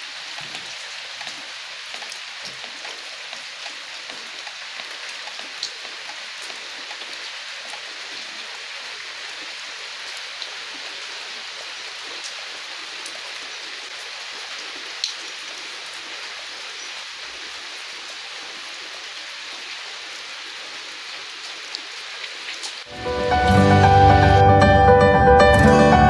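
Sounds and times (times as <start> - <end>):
rain on muddy ground: 0.0 - 26.0.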